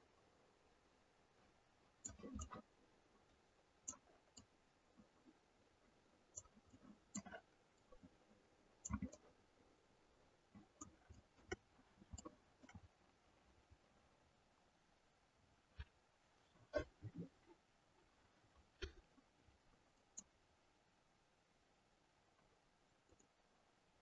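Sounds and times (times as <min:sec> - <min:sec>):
mouse and keyboard clicks: 0:02.0 - 0:02.7, 0:08.8 - 0:09.2.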